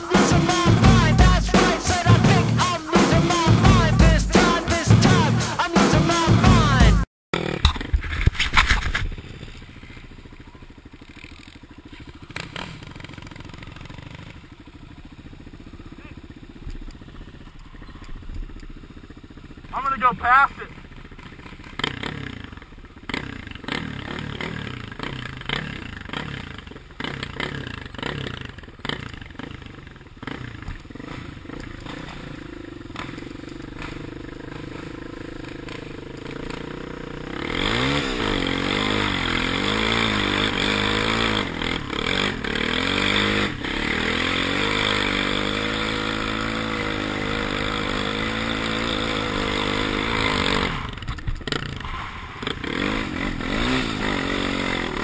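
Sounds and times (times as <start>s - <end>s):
quad bike engine revving: 0.0s - 55.0s.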